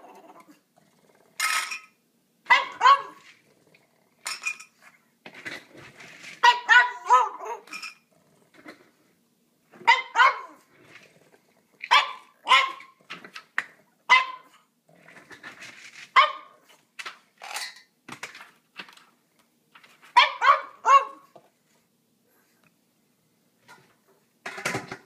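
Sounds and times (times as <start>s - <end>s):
dog barking: 2.5s - 3.2s, 6.4s - 7.6s, 9.8s - 10.6s, 11.9s - 12.9s, 14.1s - 14.5s, 16.2s - 16.6s, 20.2s - 21.3s.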